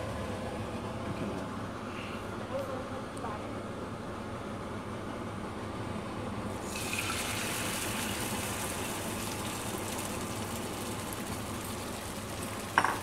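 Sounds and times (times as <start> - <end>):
egg pouring into pan: 6.6 - 12.8
egg sizzling in hot oil: 6.6 - 13.0.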